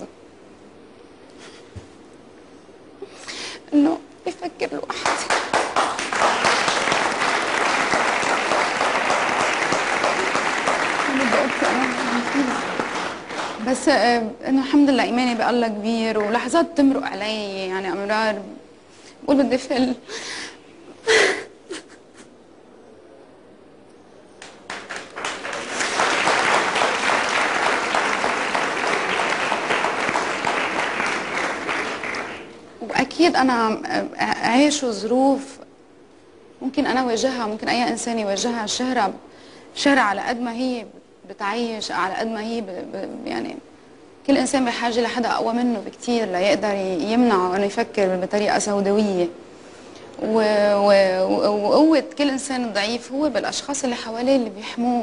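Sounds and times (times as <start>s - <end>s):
audience applauding: 5.0s - 13.8s, 24.4s - 32.7s.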